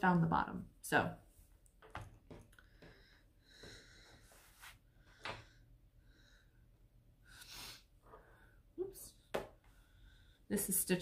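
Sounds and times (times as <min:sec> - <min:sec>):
faint breathing: 0:02.6 - 0:08.7, 0:09.7 - 0:10.6.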